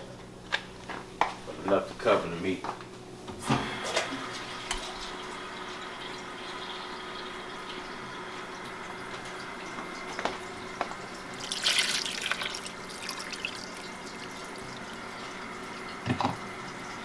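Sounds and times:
water splashing into a pan: 0:11.3 - 0:14.9.

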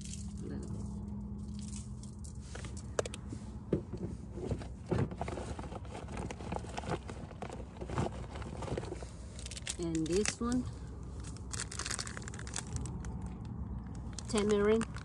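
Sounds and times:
plastic bag rustling: 0:04.4 - 0:15.0
low rumble: 0:06.0 - 0:15.0.

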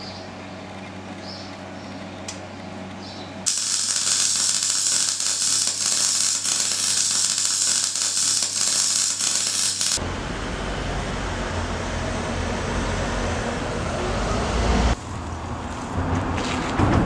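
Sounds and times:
low workshop hum: 0:00.0 - 0:14.1
welding arc crackling hiss: 0:03.5 - 0:10.0.

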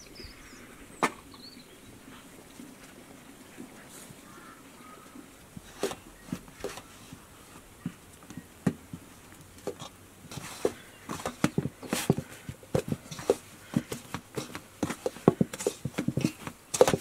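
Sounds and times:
hands kneading sticky dough: 0:04.9 - 0:17.0.

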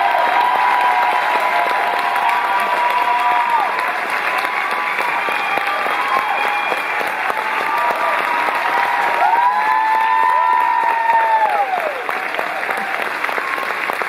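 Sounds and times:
audience applauding: 0:00.0 - 0:14.0
long whoops: 0:04.5 - 0:13.7.

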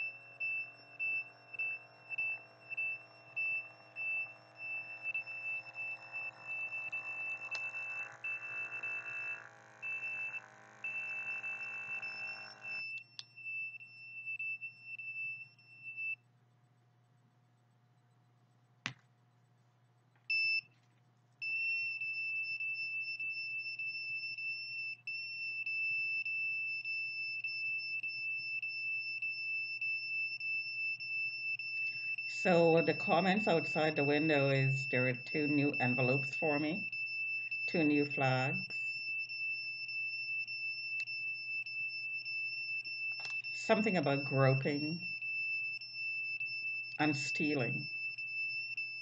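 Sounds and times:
low humming tone: 0:00.0 - 0:12.9
high-pitched electronic beeper: 0:00.0 - 0:13.6, 0:32.4 - 0:36.9.

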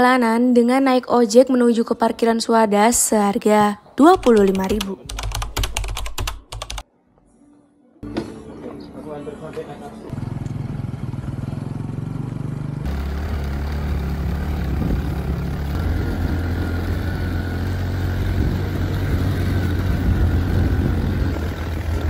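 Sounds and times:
motorcycle engine running: 0:10.1 - 0:22.0
wind rushing noise: 0:18.2 - 0:22.0.

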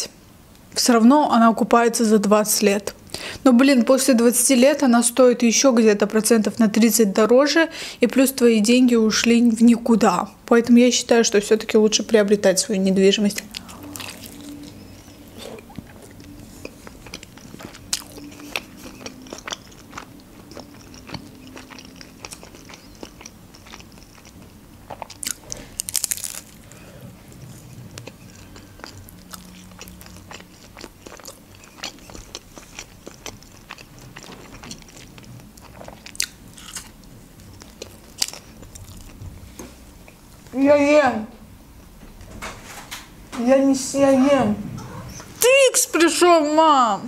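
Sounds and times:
person chewing food: 0:13.4 - 0:40.3.

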